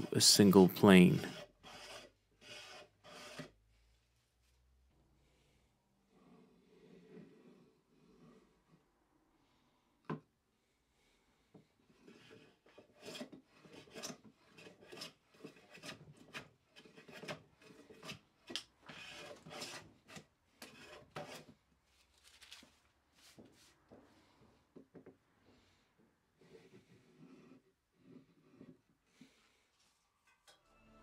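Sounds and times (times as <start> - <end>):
hand plane shaving wood: 1.2 - 3.6, 11.9 - 21.6.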